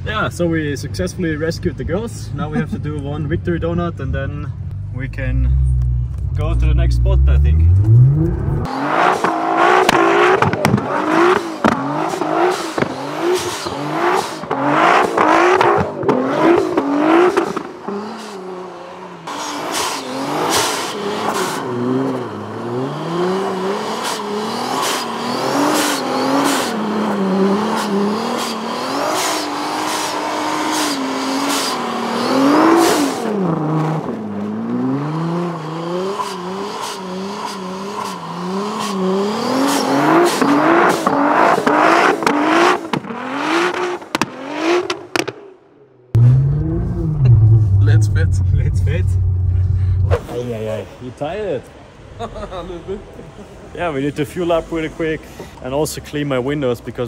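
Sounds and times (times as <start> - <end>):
car engine revving hard: 7.1 - 45.4, 46.2 - 50.4.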